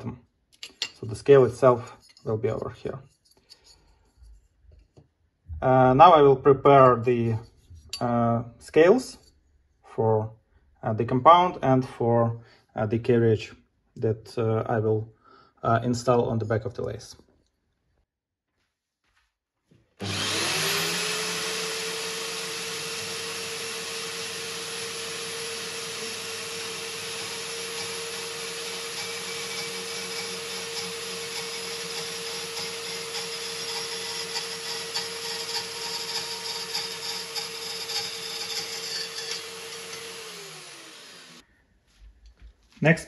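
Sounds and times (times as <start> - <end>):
band saw motor running: 20.0 - 41.4
saw rasping through metal: 20.1 - 41.4.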